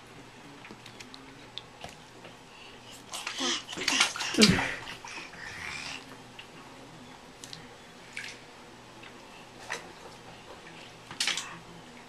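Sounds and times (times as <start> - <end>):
bath water splashing: 3.0 - 5.4, 7.4 - 8.5.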